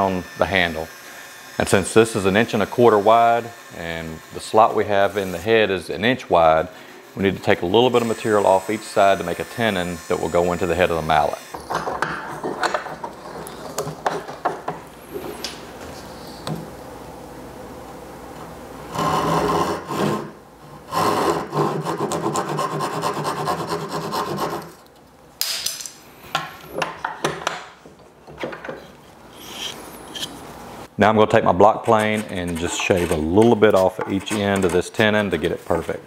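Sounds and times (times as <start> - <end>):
hand saw rasping through wood: 0.0 - 5.7, 6.3 - 11.5, 18.9 - 20.3, 20.9 - 24.7, 31.7 - 35.3.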